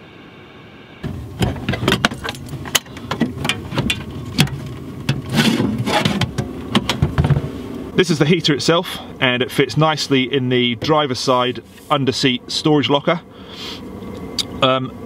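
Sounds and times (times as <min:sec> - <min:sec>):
steady low hum: 0:00.0 - 0:15.0
seat box clunks and rattles: 0:01.0 - 0:07.6.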